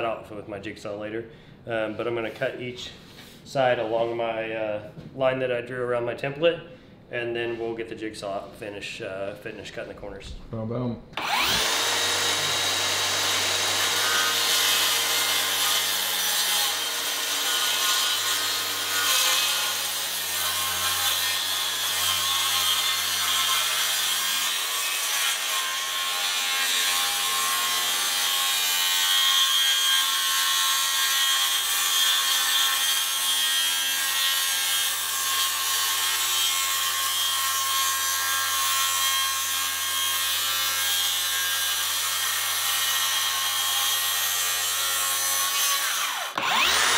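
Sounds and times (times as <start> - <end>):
circular saw cutting: 11.2 - 46.9.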